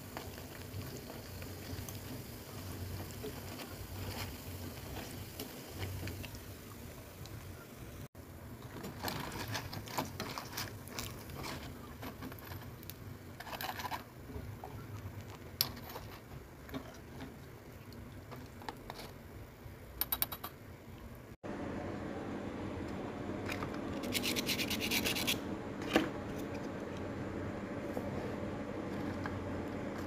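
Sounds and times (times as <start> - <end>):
oil crackling: 8.6 - 19.3.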